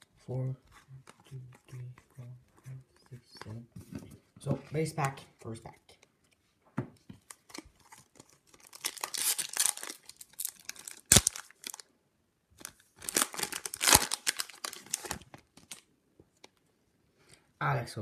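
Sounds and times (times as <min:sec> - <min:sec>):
foil wrapper tearing and crinkling: 0:07.5 - 0:11.8, 0:12.6 - 0:15.8.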